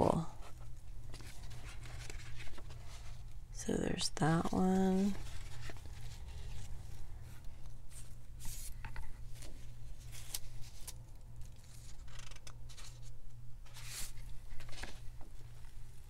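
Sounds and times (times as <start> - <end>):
steady low hum: 0.0 - 16.0
paper rustling: 0.4 - 3.3, 4.4 - 15.6.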